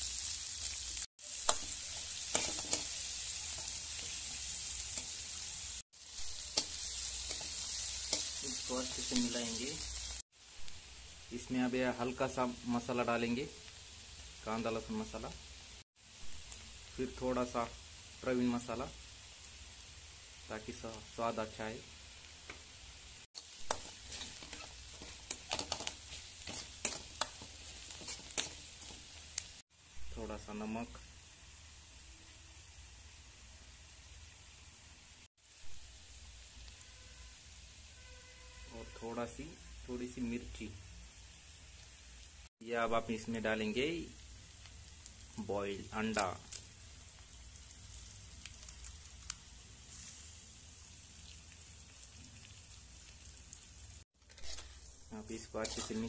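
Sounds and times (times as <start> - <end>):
onions sizzling in hot oil: 0.0 - 56.0
spatula scraping a pan: 1.3 - 5.2, 23.4 - 29.2, 54.2 - 56.0
small crackles and pops: 23.4 - 29.6, 44.5 - 50.2, 50.8 - 56.0.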